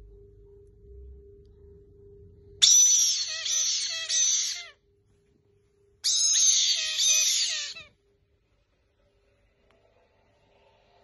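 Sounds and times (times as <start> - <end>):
parrots screeching: 2.6 - 4.8, 6.0 - 7.9.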